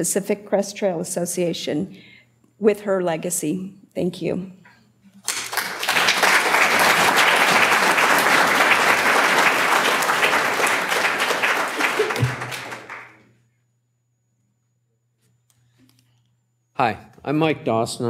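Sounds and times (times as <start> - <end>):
audience applauding: 5.2 - 13.2.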